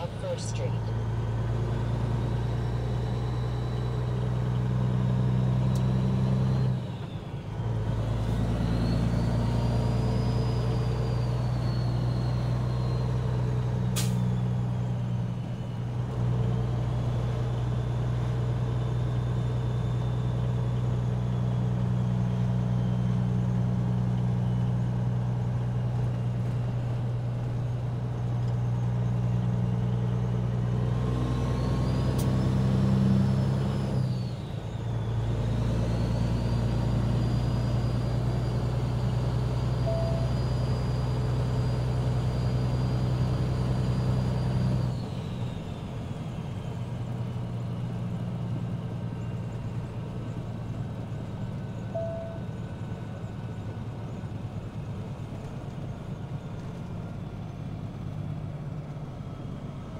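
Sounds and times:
diesel truck engine running: 0:00.0 - 0:59.9
faint high whistle: 0:39.8 - 0:40.5, 0:51.9 - 0:52.5.

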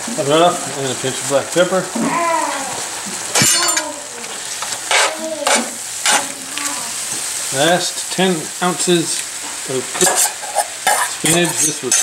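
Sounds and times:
sauce sizzling: 0:00.0 - 0:12.0
metal spoon scraping skillet: 0:04.6 - 0:06.3.

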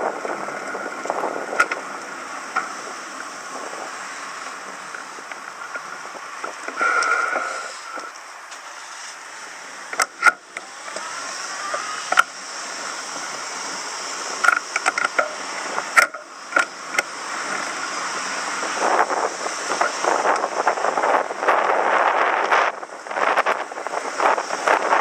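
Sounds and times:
wind gusting on microphone: 0:00.0 - 0:08.5, 0:10.6 - 0:25.0
road and wind noise: 0:00.0 - 0:25.0
sharp clicks and knocks: 0:14.4 - 0:17.7.

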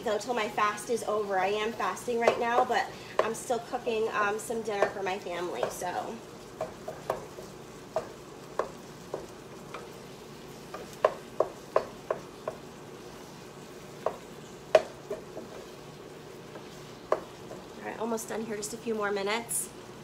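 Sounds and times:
meat sizzling in a skillet: 0:00.0 - 0:19.0
utensil knocking against pan: 0:02.2 - 0:03.4, 0:06.6 - 0:09.3, 0:10.7 - 0:12.6, 0:14.0 - 0:15.6.

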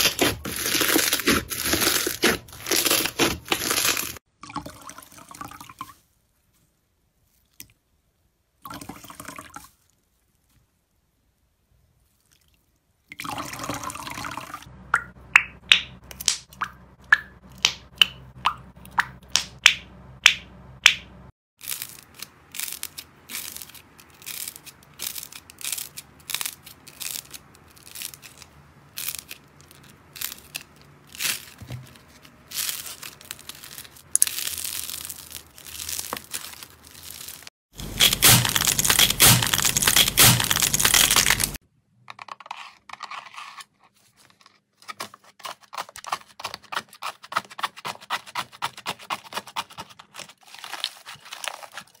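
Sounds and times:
squishy ball crunching: 0:00.0 - 0:04.2, 0:21.6 - 0:41.6
clay crackling as kneaded: 0:00.0 - 0:04.3, 0:17.3 - 0:41.6, 0:42.4 - 0:52.0.

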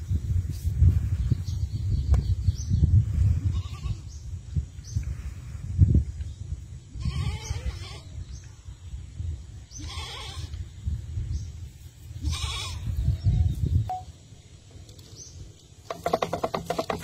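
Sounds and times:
animal bleating: 0:03.5 - 0:04.0, 0:07.0 - 0:08.1, 0:09.8 - 0:10.6, 0:12.2 - 0:13.0.

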